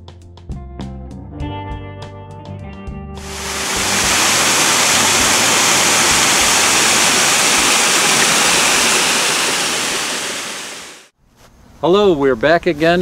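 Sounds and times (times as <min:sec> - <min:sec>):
waterfall splashing: 0:03.2 - 0:11.1.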